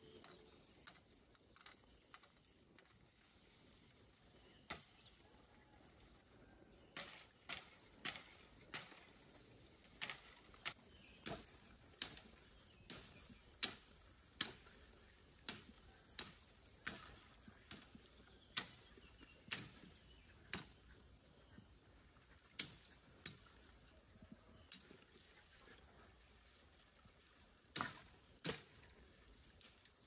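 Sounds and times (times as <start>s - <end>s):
blade chopping bamboo: 27.7s - 28.7s.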